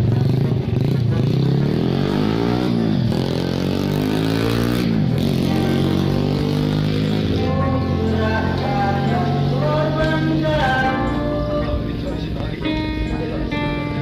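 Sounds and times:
motorcycle engine revving: 0:00.0 - 0:14.0
acoustic guitar: 0:04.9 - 0:14.0
person singing: 0:07.0 - 0:14.0.

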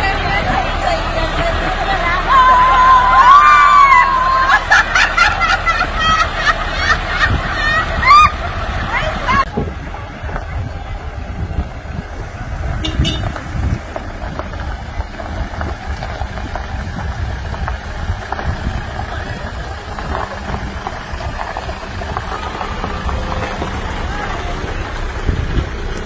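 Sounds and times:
faint voices: 0:00.0 - 0:12.8, 0:13.4 - 0:26.0
truck engines rumbling: 0:00.0 - 0:26.0.

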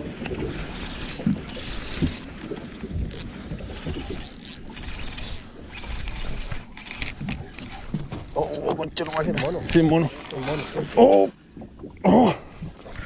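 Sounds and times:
fishing reel cranking: 0:00.7 - 0:02.3, 0:03.1 - 0:03.3, 0:03.9 - 0:11.4.

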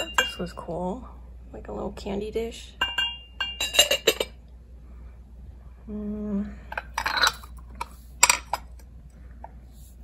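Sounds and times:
glass dishes clinking: 0:00.0 - 0:00.6, 0:02.8 - 0:04.4, 0:06.7 - 0:08.7.

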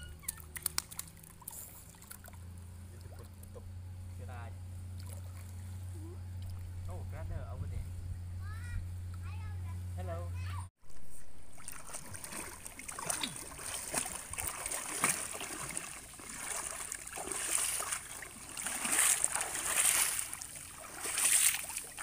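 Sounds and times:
pool water splashing: 0:00.0 - 0:03.7, 0:04.8 - 0:05.7, 0:10.9 - 0:22.0.

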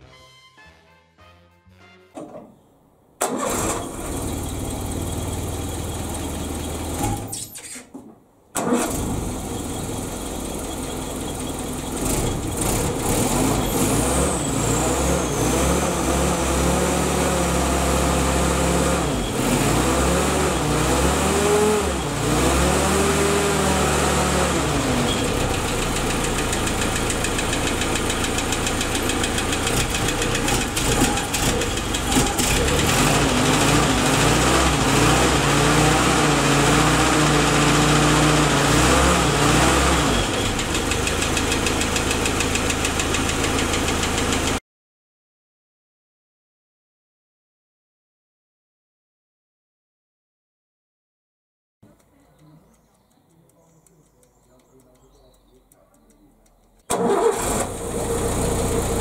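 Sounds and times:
engine starting and idling with knock: 0:03.2 - 0:44.6, 0:56.8 - 0:59.0.

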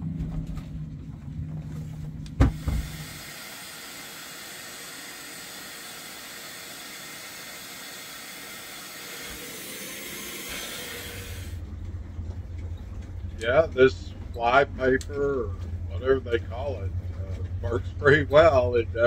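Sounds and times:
vacuum cleaner running: 0:02.3 - 0:11.6
brief thump: 0:02.4 - 0:02.9.

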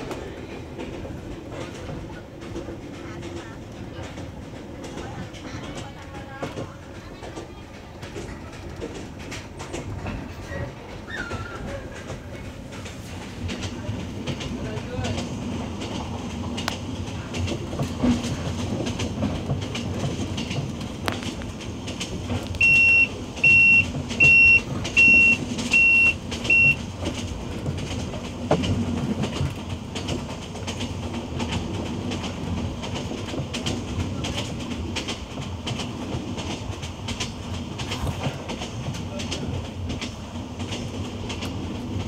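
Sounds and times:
train wheels rumbling on rails: 0:00.0 - 0:42.0
short electronic beeps: 0:22.6 - 0:26.8.

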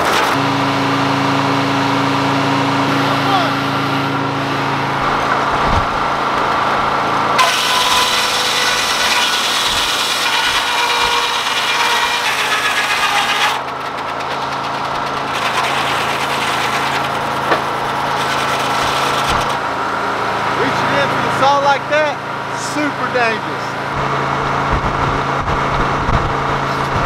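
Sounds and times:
diesel engine droning: 0:00.0 - 0:27.0
circular saw blade ripping a board: 0:07.4 - 0:19.6.

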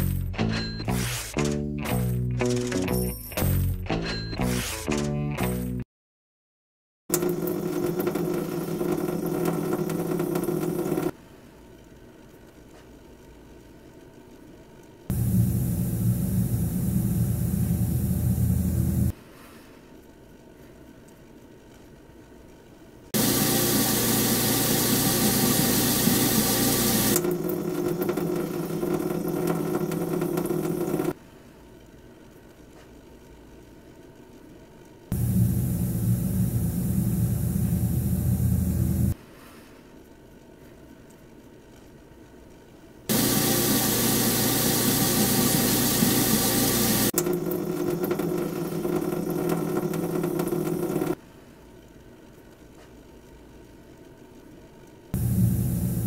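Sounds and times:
garbage disposal motor hum: 0:07.1 - 0:11.1, 0:15.1 - 0:19.1, 0:23.2 - 0:31.2, 0:35.1 - 0:39.2, 0:43.1 - 0:51.2, 0:55.2 - 0:56.0
tap water rushing: 0:07.1 - 0:11.2, 0:23.2 - 0:31.2, 0:43.1 - 0:51.2
low steady hum: 0:15.1 - 0:19.1, 0:35.1 - 0:39.2, 0:55.2 - 0:56.0
water dripping: 0:27.2 - 0:31.2, 0:47.1 - 0:51.2.

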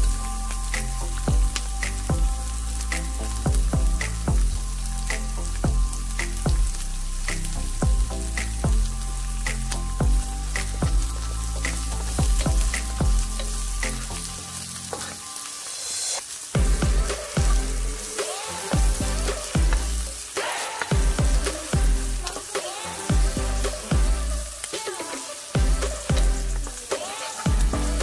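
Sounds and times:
background music with beat: 0:00.0 - 0:28.0
onion sizzling in oil: 0:00.0 - 0:28.0
spatula stirring in pan: 0:10.2 - 0:15.9.

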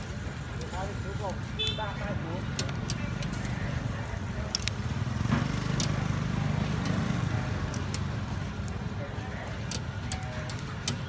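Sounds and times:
metal tongs clicking on grill bars: 0:02.2 - 0:11.0.

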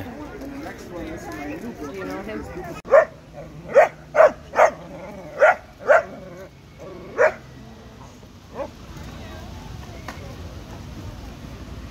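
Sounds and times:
dog barking: 0:02.9 - 0:04.8, 0:05.4 - 0:06.2, 0:07.2 - 0:07.4.

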